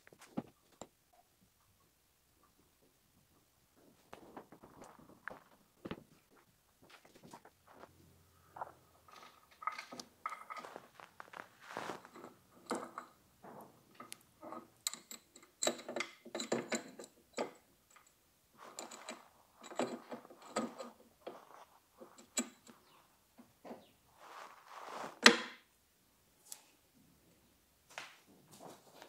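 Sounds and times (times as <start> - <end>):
metal chain clinking and rattling: 14.4 - 21.4.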